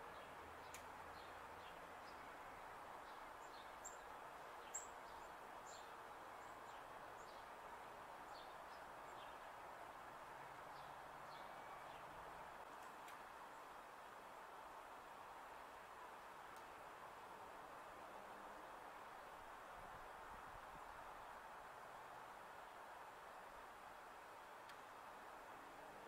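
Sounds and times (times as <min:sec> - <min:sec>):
small birds chirping: 0:00.0 - 0:02.4, 0:03.0 - 0:07.6, 0:08.3 - 0:09.6, 0:10.7 - 0:13.7
faint outdoor hiss: 0:00.0 - 0:26.0.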